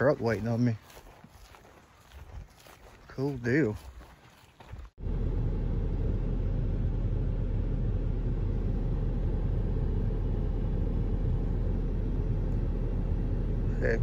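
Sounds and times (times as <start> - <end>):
road noise: 0.0 - 14.0
pickup truck engine rumble: 5.0 - 14.0.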